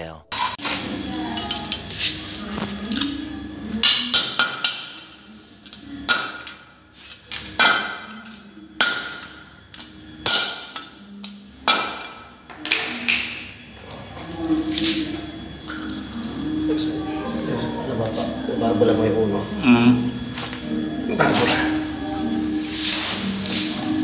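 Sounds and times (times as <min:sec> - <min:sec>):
hammer striking metal tool: 0:03.8 - 0:13.4.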